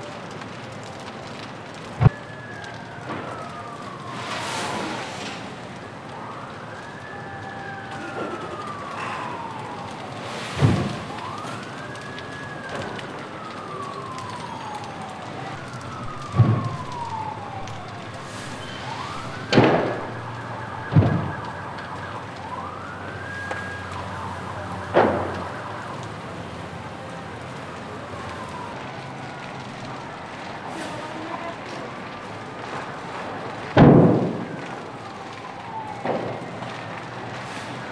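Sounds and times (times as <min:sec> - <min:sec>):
building fire rushing: 0:00.0 - 0:37.9
emergency siren wailing: 0:00.0 - 0:37.9
loud explosion bangs: 0:18.2 - 0:20.2, 0:33.8 - 0:34.5.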